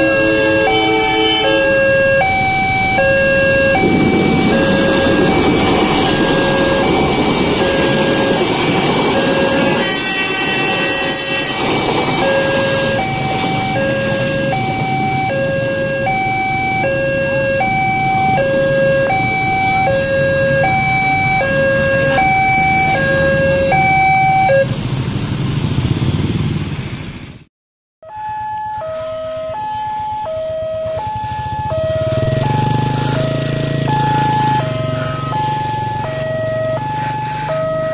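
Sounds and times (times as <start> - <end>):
level crossing two-tone alarm: 0.0 - 24.7, 28.0 - 37.9
train passing rumble: 0.0 - 27.4.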